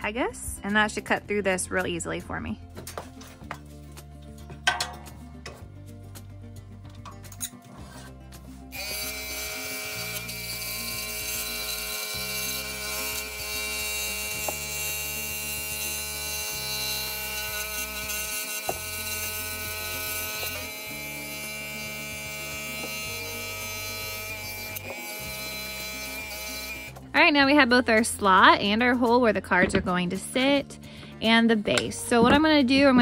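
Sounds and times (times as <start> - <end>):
background music with bass: 0.0 - 33.0
scroll saw cutting wood: 8.7 - 27.0.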